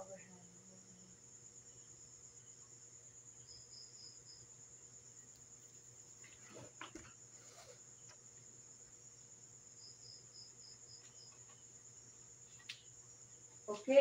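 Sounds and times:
crickets trilling: 0.0 - 14.0
faint rustles: 5.3 - 8.4.

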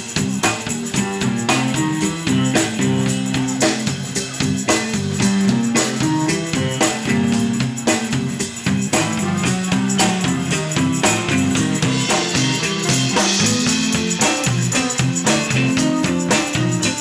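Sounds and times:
bass guitar: 0.0 - 17.0
drum kit beat: 0.0 - 17.0
electric guitars: 0.0 - 17.0.

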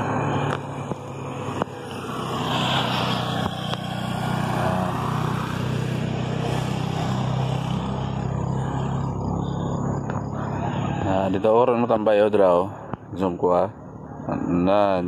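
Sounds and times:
motor engine humming: 0.0 - 11.4
wind and road noise: 0.0 - 15.0.

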